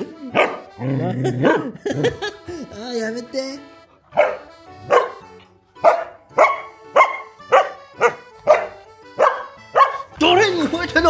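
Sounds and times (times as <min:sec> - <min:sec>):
puppy barking: 0:00.3 - 0:02.2, 0:04.0 - 0:10.2.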